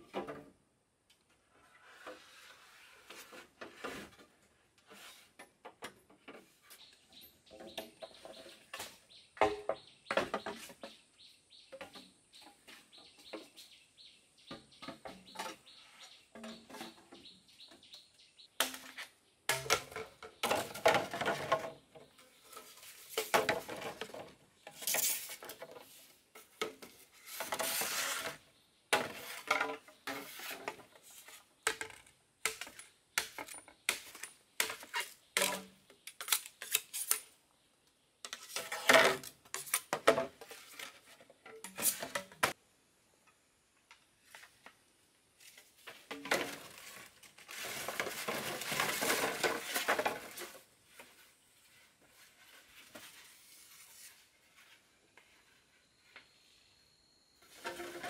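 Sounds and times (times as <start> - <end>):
objects scraping: 1.6 - 5.6, 18.6 - 37.3, 38.3 - 42.6, 45.4 - 55.7, 57.4 - 58.0
objects knocking and clicking: 18.6 - 27.8.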